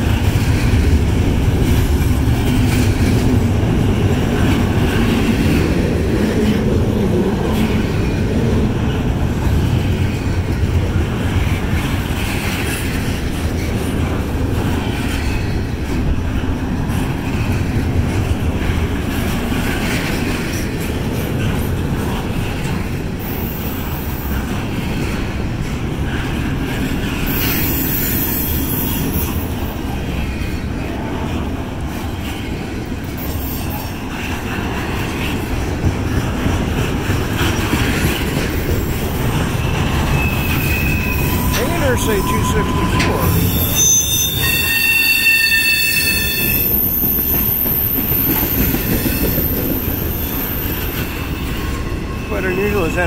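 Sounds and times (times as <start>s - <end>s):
train wheels rumbling on rails: 0.0s - 53.0s
high-pitched wheel squeals: 40.1s - 51.6s.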